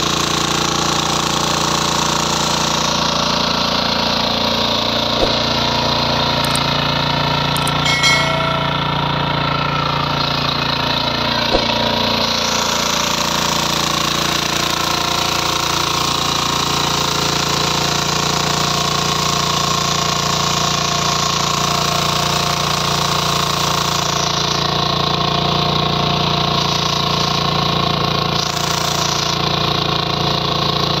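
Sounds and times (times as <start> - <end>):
power weeder engine running: 0.0 - 7.8, 8.6 - 31.0
sharp knock: 5.2 - 5.8, 7.6 - 9.4, 11.5 - 12.2.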